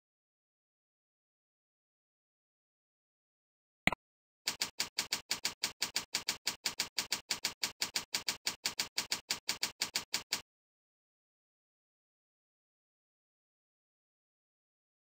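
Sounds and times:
computer keyboard typing: 4.5 - 10.4.

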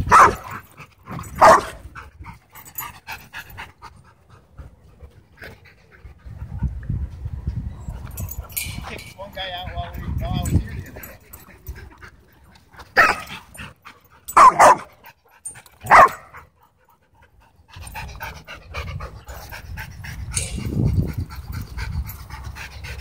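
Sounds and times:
dog barking: 0.1 - 0.4, 1.4 - 1.8, 13.0 - 13.3, 14.4 - 14.9, 15.8 - 16.3
dog panting: 9.4 - 23.0.

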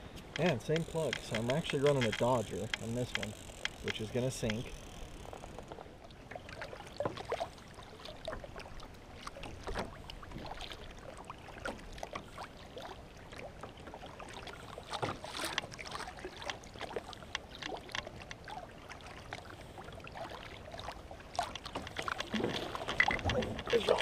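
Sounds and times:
paddle splashing in water: 5.5 - 24.0.

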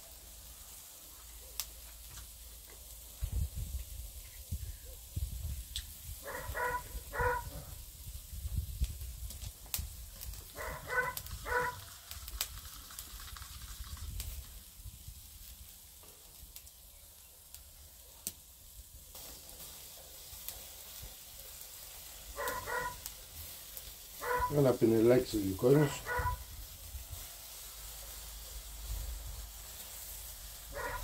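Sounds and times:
meat sizzling on a grill: 0.0 - 31.0
sharp crackles: 0.5 - 3.2, 5.6 - 7.7, 8.5 - 31.0
dog barking: 6.2 - 7.7, 10.6 - 11.8, 22.4 - 23.0, 24.2 - 24.6, 25.8 - 26.4, 30.7 - 31.0.

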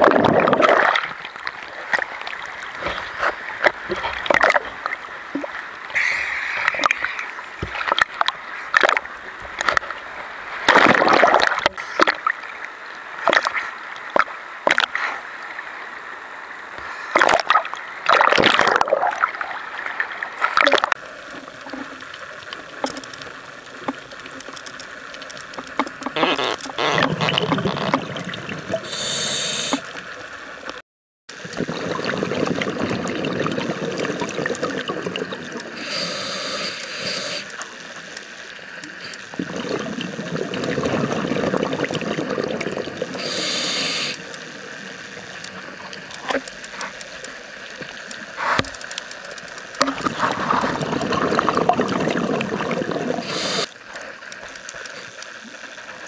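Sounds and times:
gurgling exhaled bubbles: 0.0 - 2.0, 26.2 - 29.9, 31.4 - 37.4, 39.0 - 44.4, 49.8 - 53.7
regulator hissing inhale: 28.8 - 29.9, 35.8 - 37.6, 43.2 - 44.3, 53.2 - 53.8.

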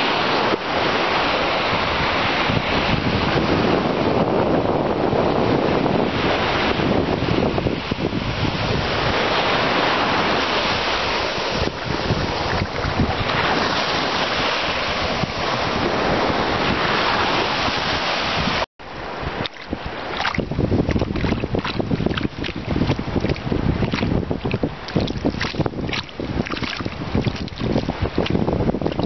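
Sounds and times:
surf washing on sandy shore: 0.0 - 29.0
wind buffeting microphone: 0.8 - 29.0.

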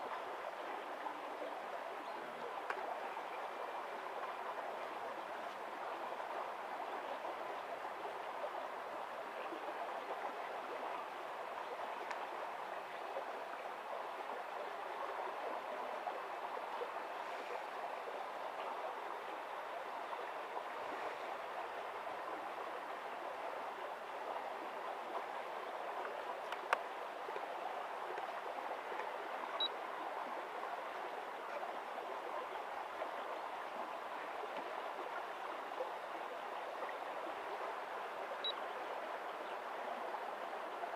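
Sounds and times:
faint click: 2.6 - 2.9, 12.0 - 12.3, 26.0 - 27.5.

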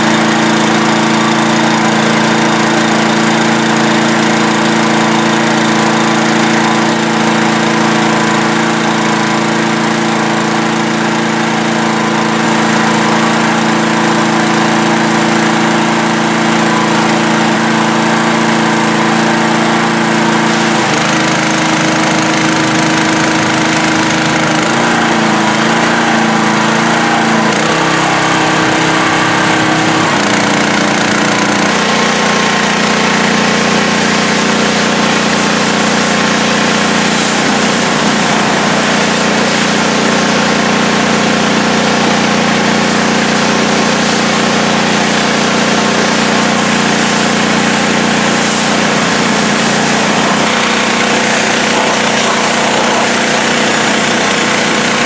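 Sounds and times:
pressure washer engine running: 0.0 - 55.0
high-pressure spray hiss: 20.5 - 21.1, 31.7 - 41.2, 42.1 - 55.0.

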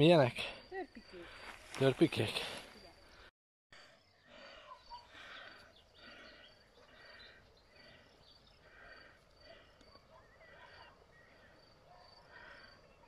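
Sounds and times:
faint high chirping: 4.0 - 9.0.

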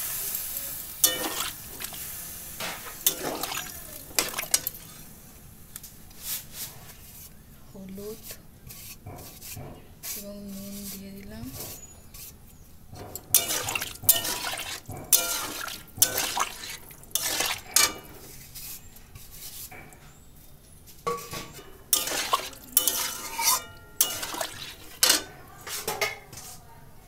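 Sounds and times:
metal spatula scraping metal pan: 1.0 - 2.0, 3.0 - 5.0, 8.2 - 19.8, 21.1 - 26.6.

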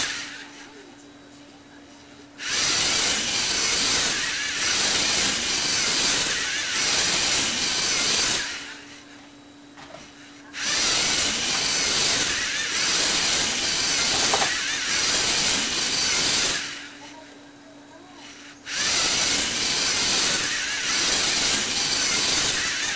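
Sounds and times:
toy gear train whirring: 0.0 - 0.8, 2.4 - 9.1, 10.3 - 17.3, 18.1 - 22.9.

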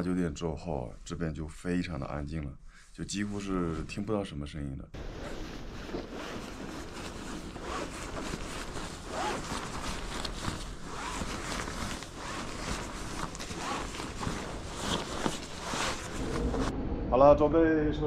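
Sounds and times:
fabric scraping plastic groundsheet: 5.0 - 16.7
nylon fabric rustling: 5.0 - 16.7.

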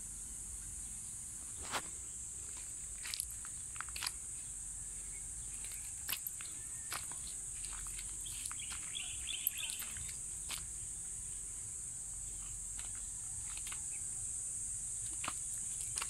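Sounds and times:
insects droning: 0.0 - 16.0
footsteps on gravel: 1.6 - 4.5, 5.1 - 10.8, 15.2 - 16.0
bird chirping: 3.6 - 14.1.

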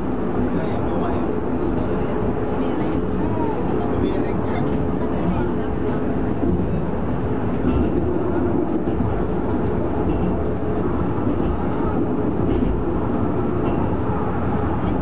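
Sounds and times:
wheels rumbling on rails: 0.0 - 15.0.

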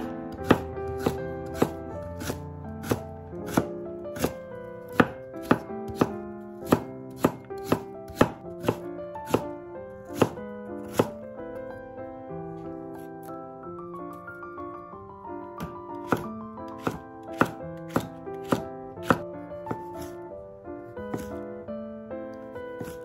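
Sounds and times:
knife chopping on wooden board: 0.0 - 9.5, 10.1 - 11.2, 15.6 - 20.2, 21.1 - 21.4, 22.8 - 23.0
soft background music: 0.0 - 23.0.

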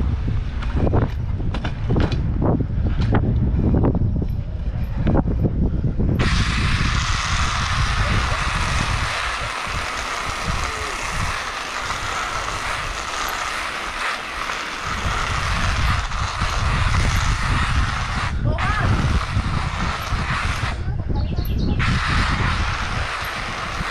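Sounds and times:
wind buffeting microphone: 0.0 - 23.9
hissing road noise: 6.2 - 23.9.

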